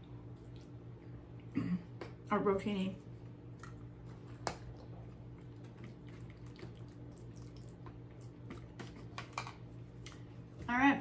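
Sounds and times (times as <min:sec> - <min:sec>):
chewing with wet mouth clicks: 0:00.0 - 0:01.5, 0:03.5 - 0:10.3
low room hum: 0:00.0 - 0:11.0.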